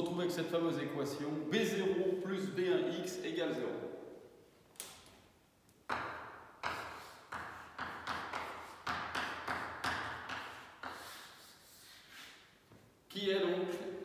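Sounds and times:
chalk tapping on a blackboard: 0:05.9 - 0:12.4.

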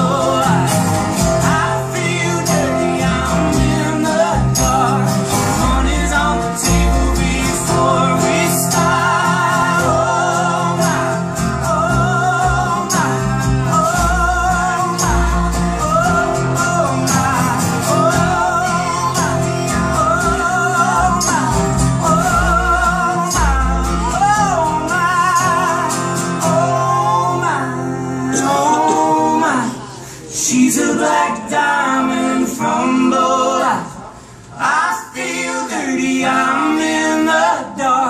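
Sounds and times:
upright bass: 0:00.0 - 0:29.8
men and women singing together: 0:00.0 - 0:38.0
strummed acoustic guitars: 0:00.0 - 0:38.0.

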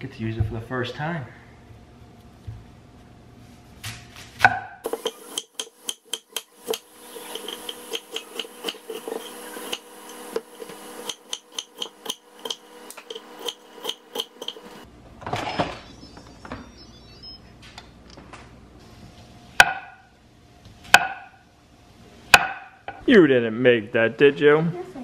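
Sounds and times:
knife chopping on wooden board: 0:04.4 - 0:14.7, 0:19.6 - 0:20.0.

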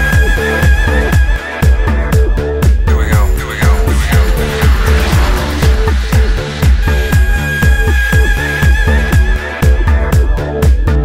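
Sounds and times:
electronic dance music: 0:02.9 - 0:08.3.

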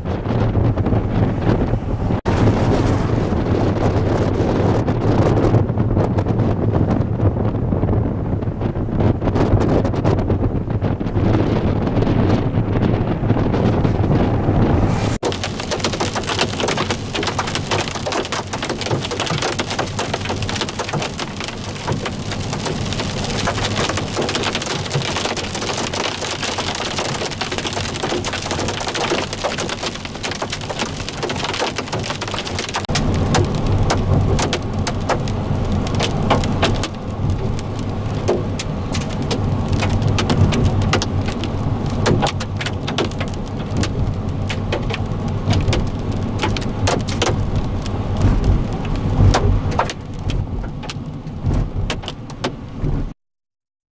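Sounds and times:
deep rumble: 0:00.0 - 0:25.7, 0:31.8 - 0:52.0
heavy rain pelting a vehicle: 0:12.3 - 0:53.1.

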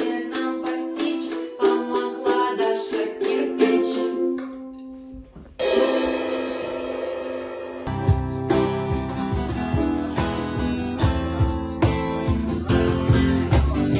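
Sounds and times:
ukuleles strumming chords: 0:00.0 - 0:06.4, 0:07.9 - 0:13.9
crash cymbal struck: 0:05.6 - 0:08.6.

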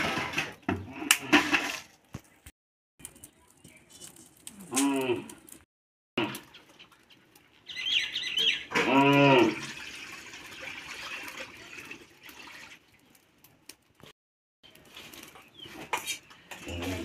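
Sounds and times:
bird chirps: 0:06.5 - 0:08.7.

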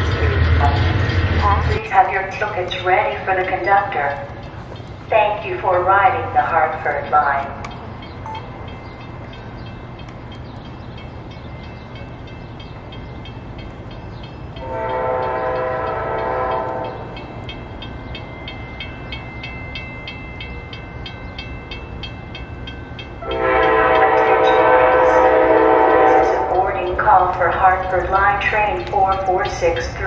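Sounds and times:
train horn blasts: 0:14.6 - 0:17.2, 0:23.2 - 0:26.8.

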